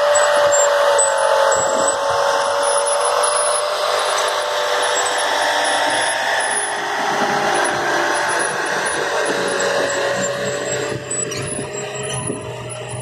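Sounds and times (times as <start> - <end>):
steady whine: 0.0 - 13.0
tractor engine under load: 0.0 - 13.0.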